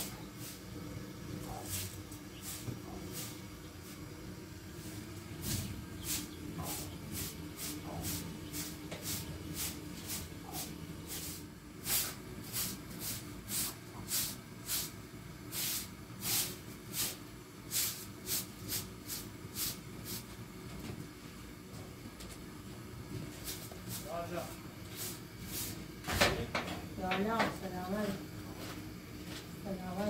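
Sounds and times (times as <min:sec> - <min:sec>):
broom sweeping concrete floor: 0:00.0 - 0:00.8, 0:01.4 - 0:04.1, 0:04.7 - 0:20.4, 0:23.1 - 0:26.3, 0:27.2 - 0:30.0.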